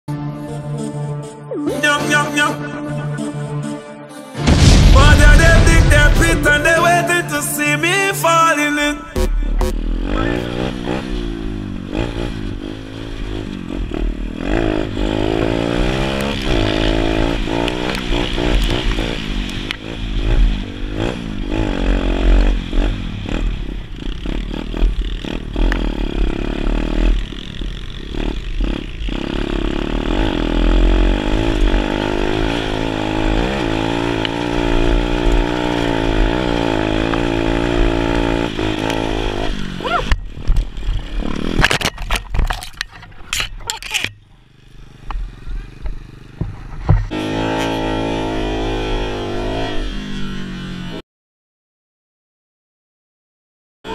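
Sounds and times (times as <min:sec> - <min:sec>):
pit bike engine revving: 0:09.0 - 0:51.0.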